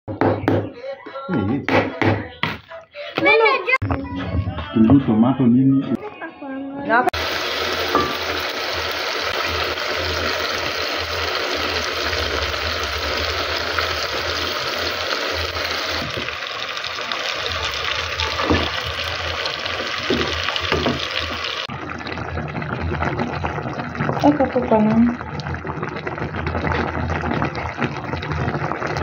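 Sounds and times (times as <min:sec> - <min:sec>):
tomatoes sizzling in hot oil: 0:07.2 - 0:29.0
wooden spoon knocking on pot: 0:17.6 - 0:19.0, 0:19.8 - 0:21.4.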